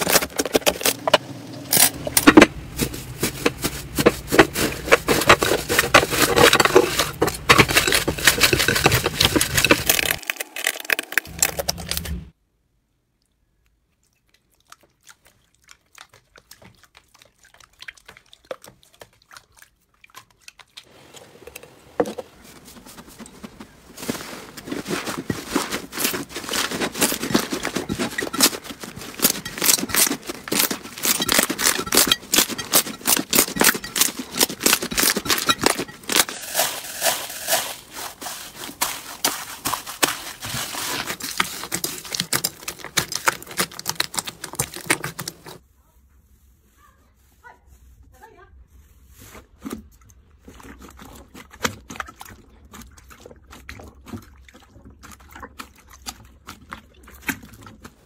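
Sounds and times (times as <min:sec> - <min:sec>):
slime crackling and popping: 0:09.2 - 0:12.3, 0:29.6 - 0:45.6.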